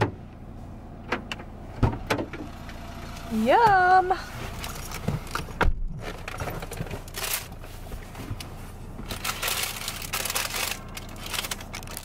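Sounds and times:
low steady hum: 0.0s - 12.0s
paper wrapper crinkling: 6.3s - 7.5s, 9.0s - 12.0s.

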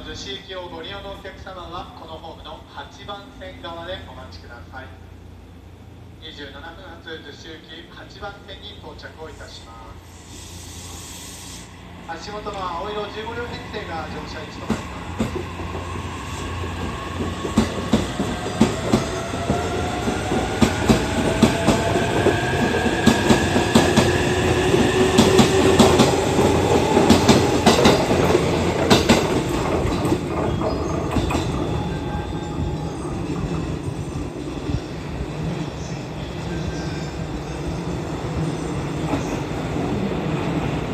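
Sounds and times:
wheels clacking over rail joints: 25.1s - 31.7s.

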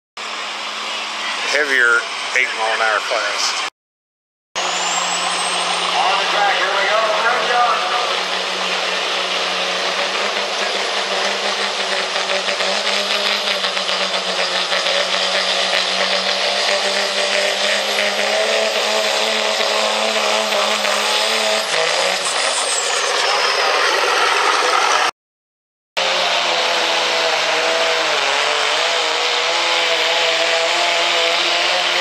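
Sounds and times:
diesel engine at full throttle: 0.2s - 3.7s, 4.6s - 25.1s, 26.0s - 32.0s
thin high whine: 4.6s - 9.0s, 21.6s - 25.0s.

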